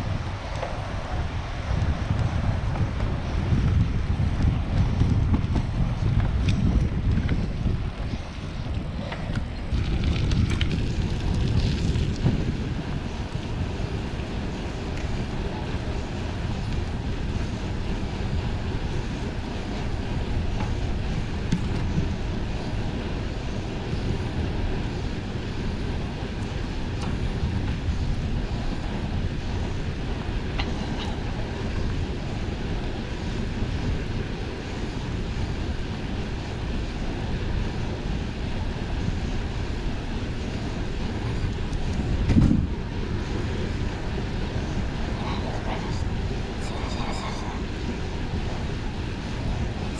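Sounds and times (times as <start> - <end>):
wind buffeting microphone: 0.0 - 49.9
bicycle bump: 42.1 - 42.7.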